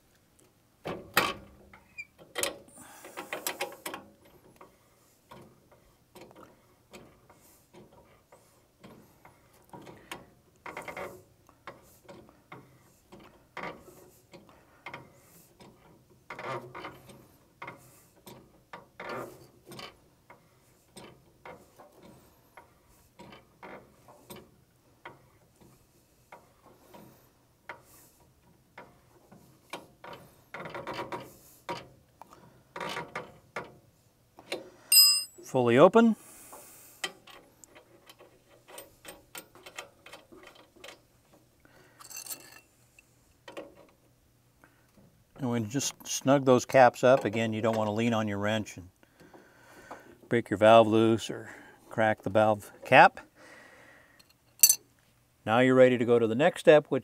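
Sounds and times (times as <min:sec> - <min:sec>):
wrench clicking and scraping on metal: 0:01.7 - 0:32.0, 0:32.7 - 0:33.8, 0:36.5 - 0:41.1, 0:42.0 - 0:44.0, 0:54.2 - 0:54.9.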